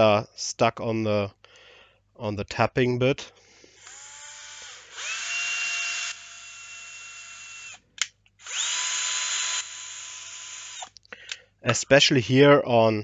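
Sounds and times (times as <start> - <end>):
cordless drill motor whine: 3.8 - 7.8, 8.4 - 10.9.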